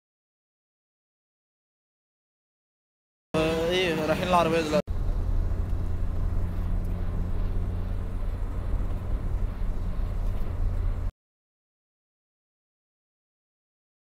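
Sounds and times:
faint steady hum: 3.4 - 11.1.

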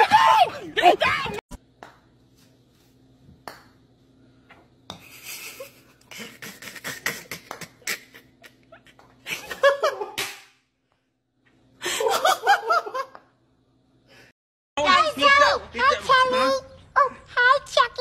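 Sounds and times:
person laughing hard: 5.1 - 10.2.

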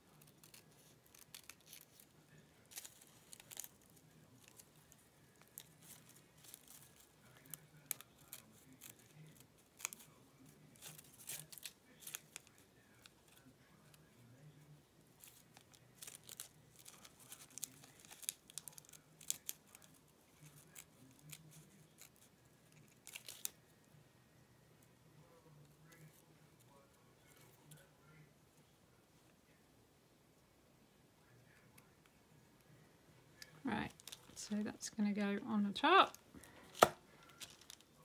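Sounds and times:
fabric and paper rustling: 0.0 - 23.7, 35.8 - 38.0.

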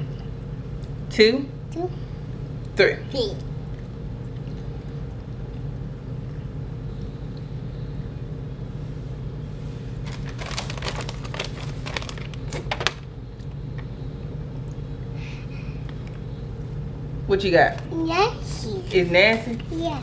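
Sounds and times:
low background hum: 0.0 - 20.0
plastic bag crinkling: 10.0 - 13.1.

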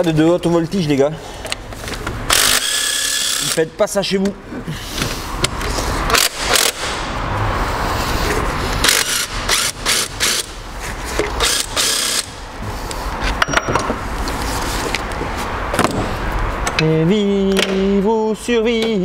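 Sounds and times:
hand tools clicking and knocking: 13.2 - 14.0.

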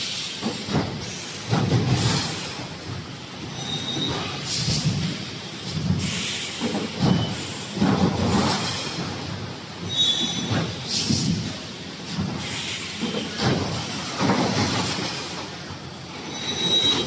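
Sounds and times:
machine hissing: 0.0 - 17.0
machine mechanical clatter: 0.3 - 17.0
high squeals: 16.2 - 17.0.

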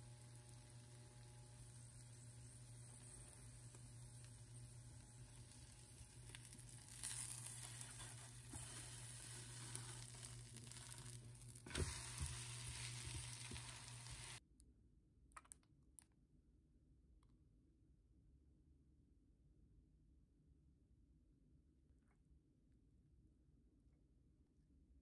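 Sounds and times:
vegetables sizzling in a frying pan: 0.0 - 14.4.

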